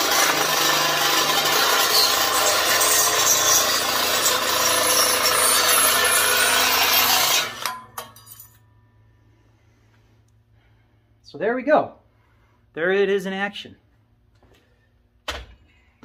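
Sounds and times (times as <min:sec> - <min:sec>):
drill-driven nibbler cutting metal: 0:00.0 - 0:07.8.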